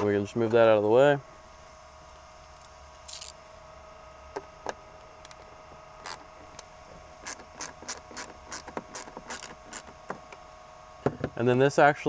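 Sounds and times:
faint steady hum: 0.0 - 12.0
hand ratchet clicking: 7.2 - 9.9.

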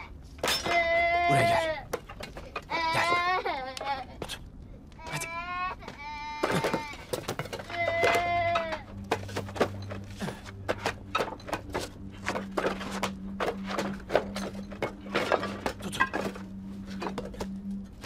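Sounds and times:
steady low drone: 0.0 - 18.0
scuffle clicks cracks and knocks: 6.4 - 17.6.

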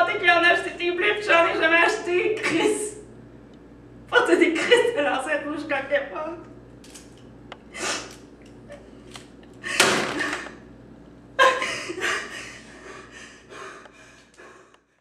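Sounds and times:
woman sobbing and wailing: 11.4 - 13.7.

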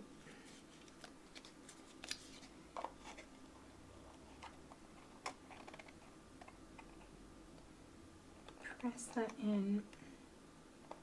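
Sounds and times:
cardstock folding clicks and crinkles: 0.5 - 3.3, 4.3 - 7.1.

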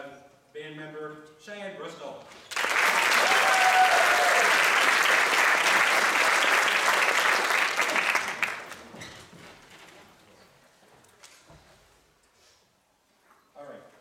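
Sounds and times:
audience applauding: 2.5 - 9.0.

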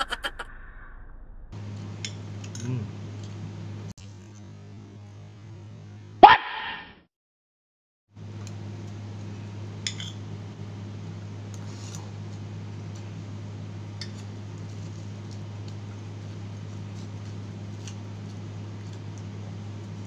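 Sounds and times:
low hum: 0.0 - 6.2.

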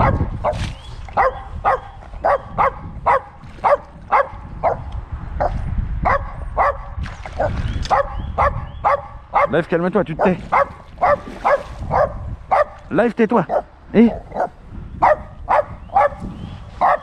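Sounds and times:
dog barking: 0.0 - 4.8, 5.4 - 9.6, 10.2 - 12.8, 13.5 - 17.0.

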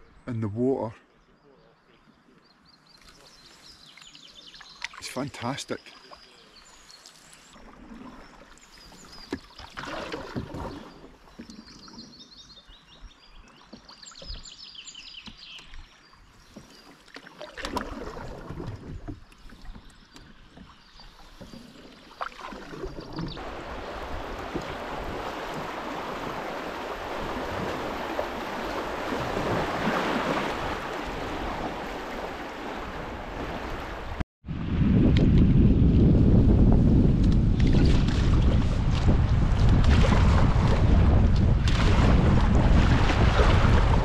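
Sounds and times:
faint birds chirping: 0.0 - 17.6, 18.7 - 23.4
paddle strokes splashing: 3.0 - 34.2, 37.2 - 44.0
rushing broken water: 7.1 - 11.6, 22.1 - 34.2, 37.7 - 44.0.

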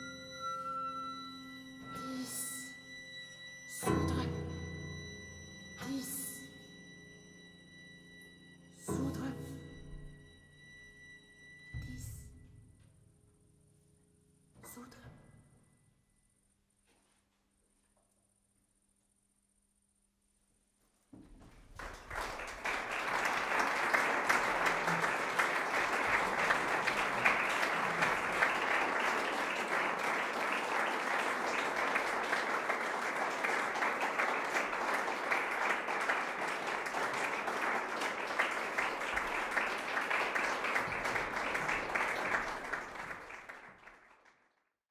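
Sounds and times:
audience applauding: 21.4 - 44.6.

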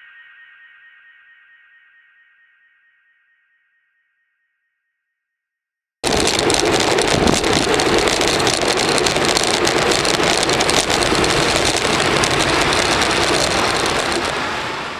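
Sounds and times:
bicycle clicks and rattles: 6.0 - 14.6
road rumble: 6.0 - 14.9
wind on microphone: 6.0 - 14.9.

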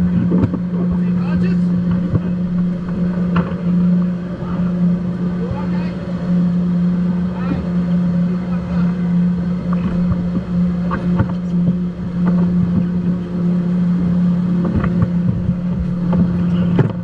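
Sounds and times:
powerboat engine idling: 0.0 - 17.0.

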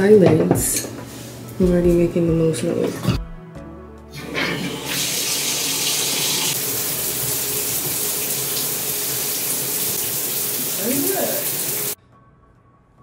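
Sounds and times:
shower water spraying: 4.6 - 12.0.

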